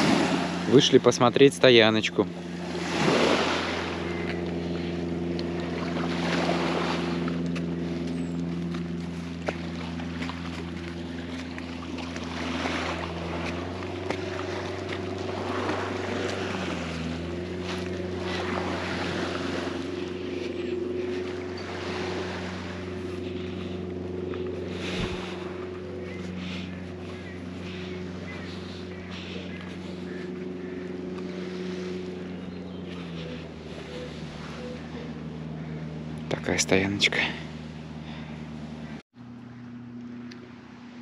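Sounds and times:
water washing: 0.0s - 38.7s
outboard motor running: 0.0s - 41.0s.

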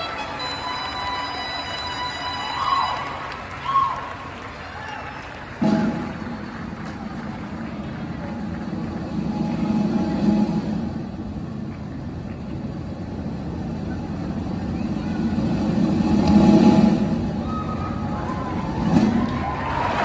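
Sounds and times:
low rumbling drone: 5.5s - 19.7s.

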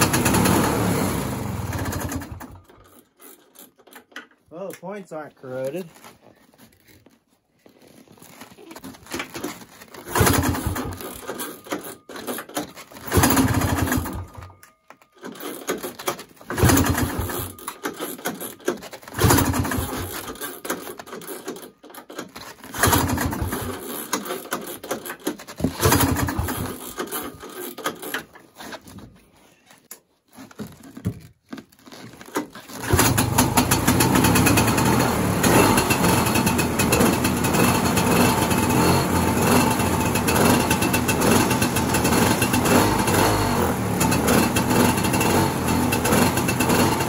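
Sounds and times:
two-stroke engine chatter: 0.0s - 2.6s, 10.1s - 11.9s, 13.0s - 14.4s, 16.5s - 18.5s, 19.1s - 20.6s, 22.8s - 24.5s, 25.7s - 27.6s, 32.8s - 47.0s
recoil starter pulls: 0.0s - 6.0s, 8.2s - 29.1s, 30.2s - 47.0s.

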